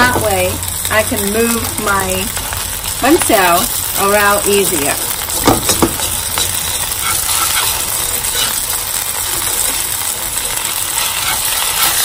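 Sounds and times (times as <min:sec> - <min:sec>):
pancake sizzling in oil: 0:00.0 - 0:12.0
sharp clicks and scrapes: 0:10.8 - 0:12.0.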